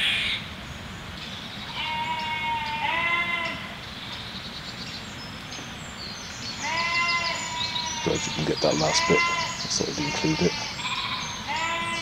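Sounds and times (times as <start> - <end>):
faint birdsong: 0.0 - 12.0
sheep bleating: 1.7 - 3.7, 6.6 - 12.0.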